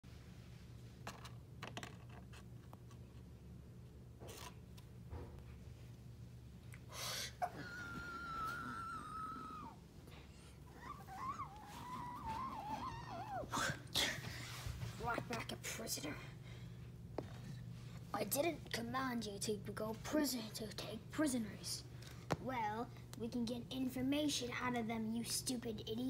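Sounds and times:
whimpering high-pitched voice: 7.4 - 9.8, 10.7 - 13.8
high-pitched vocal whine: 10.7 - 14.2.

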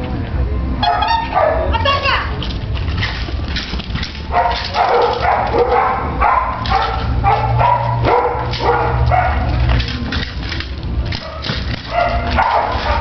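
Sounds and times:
dog barking: 0.8 - 1.8, 4.3 - 9.6, 11.2 - 13.0.

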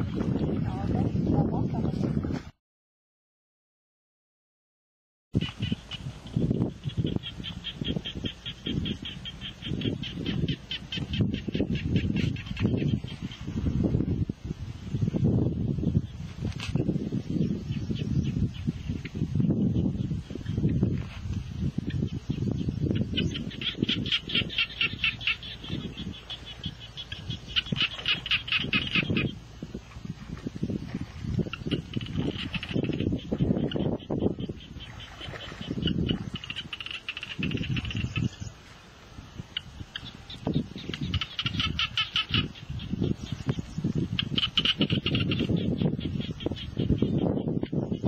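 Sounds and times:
animal rapid chattering call: 35.6 - 38.4, 40.8 - 42.8, 44.1 - 47.4
small animal chirping: 35.7 - 38.5.

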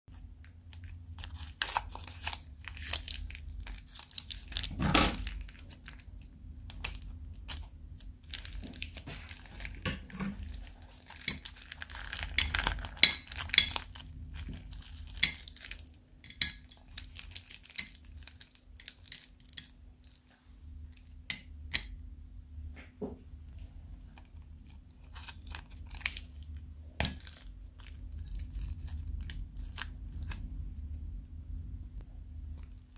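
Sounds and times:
plastic bag crinkling: 0.5 - 15.9, 24.0 - 30.5.

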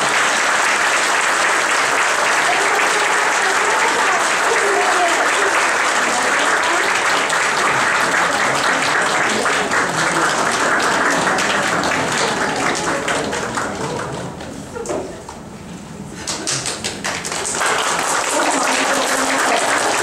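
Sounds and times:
audience applause: 0.0 - 14.6, 16.2 - 20.0.

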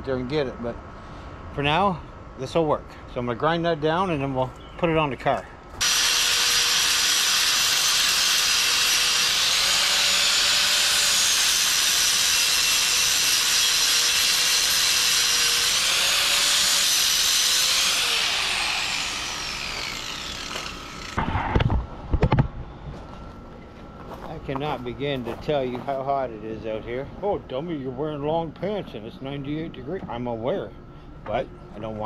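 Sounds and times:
angle grinder grinding metal: 5.8 - 21.2
grinder winding down: 5.8 - 21.2.

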